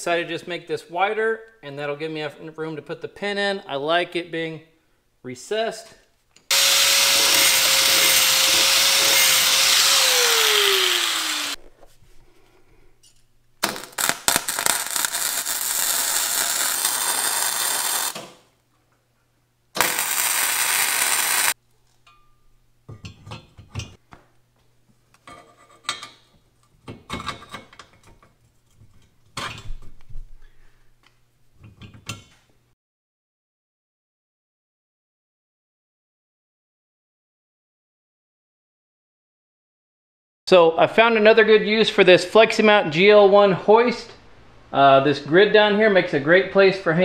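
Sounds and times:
power tool whining: 6.5s - 11.6s, 19.8s - 21.6s
welder crackling: 6.5s - 11.6s, 13.6s - 18.4s, 19.8s - 21.6s.

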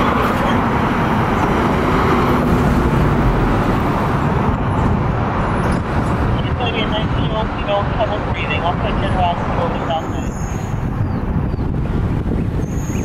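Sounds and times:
road traffic: 0.0s - 13.0s
vehicle engines running: 0.0s - 13.0s.

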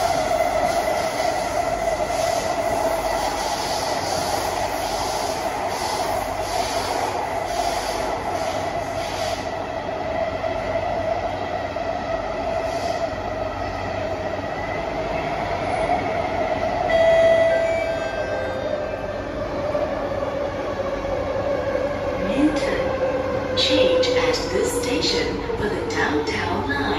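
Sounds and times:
metro train cabin rumble: 0.0s - 26.9s.

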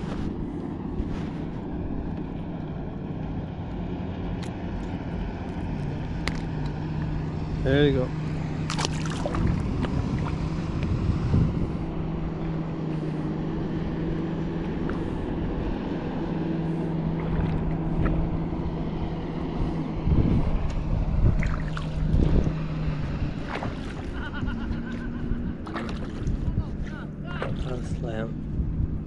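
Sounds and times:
motorboat engine droning: 0.0s - 29.0s
low bumps: 8.2s - 29.0s
wind noise on microphone: 9.0s - 12.4s, 19.5s - 29.0s.

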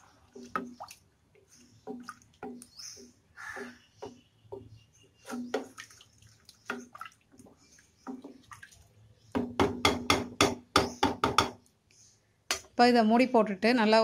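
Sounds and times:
liquid sloshing: 0.0s - 3.6s, 5.2s - 9.3s
spatula knocking against pot: 9.4s - 11.6s.

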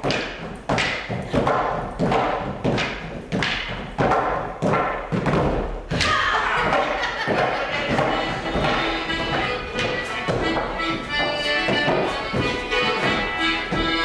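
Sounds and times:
wooden sticks struck together: 0.0s - 14.0s
accordion music: 7.6s - 14.0s.

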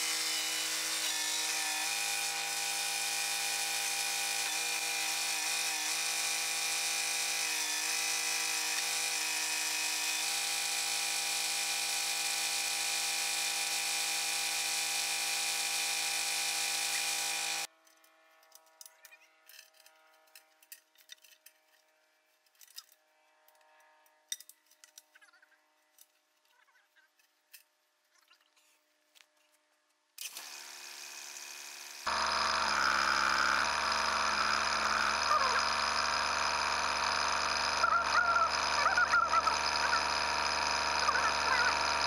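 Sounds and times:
faint clicks and scrapes: 17.7s - 30.1s
tractor diesel engine running: 32.1s - 42.0s.

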